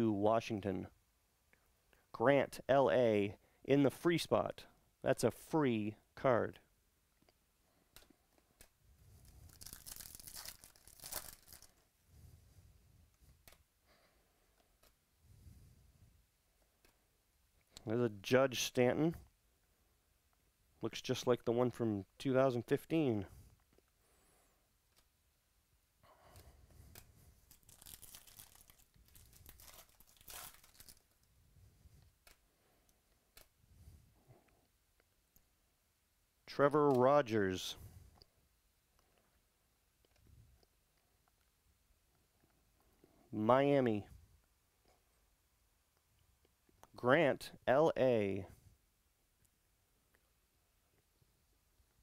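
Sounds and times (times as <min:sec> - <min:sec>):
wrapper tearing and crinkling: 0:09.2 - 0:11.8, 0:27.4 - 0:31.2.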